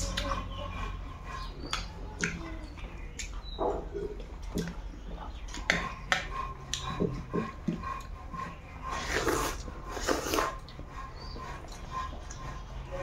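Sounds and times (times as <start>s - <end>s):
chewing with smacking mouth sounds: 0.0s - 13.0s.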